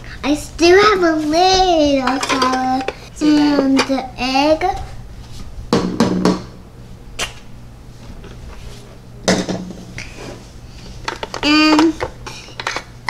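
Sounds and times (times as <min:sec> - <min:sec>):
plastic toys clattering: 0:02.0 - 0:02.9, 0:11.0 - 0:12.9.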